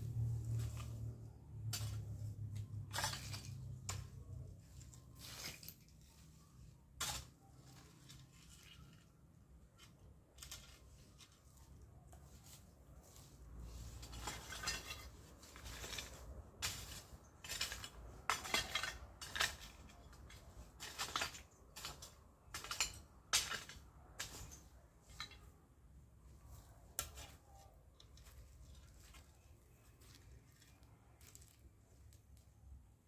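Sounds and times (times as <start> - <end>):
plants pulled and rustling: 0.0 - 17.9, 26.2 - 32.7
hoe scraping soil and stones: 0.0 - 25.6, 26.3 - 32.2.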